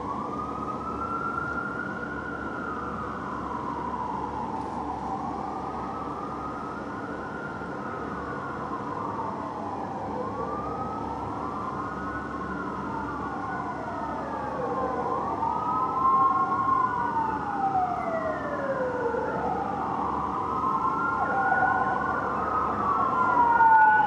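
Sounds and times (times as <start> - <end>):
sirens wailing: 0.0 - 24.0.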